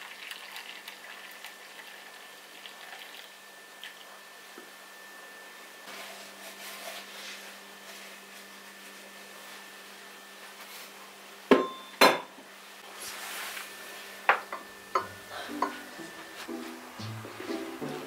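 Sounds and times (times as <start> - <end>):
dishes and cutlery clinking: 14.3 - 16.0.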